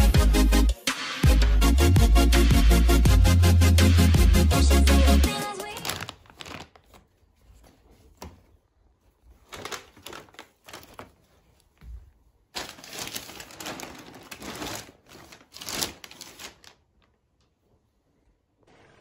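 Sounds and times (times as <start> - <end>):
plastic bags rustling: 5.3 - 8.2, 9.0 - 17.2.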